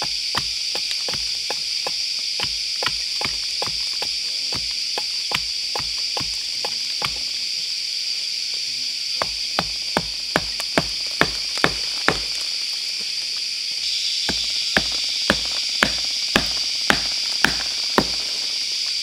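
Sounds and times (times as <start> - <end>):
hatchet knocking wooden pegs: 0.0 - 7.4, 9.2 - 12.5, 14.3 - 18.7.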